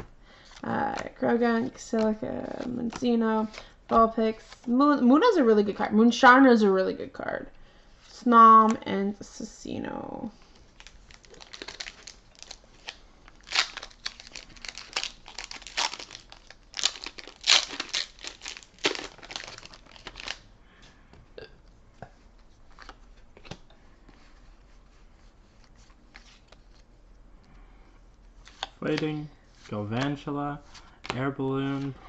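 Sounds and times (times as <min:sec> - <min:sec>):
foil wrapper tearing and crinkling: 0:10.8 - 0:20.4.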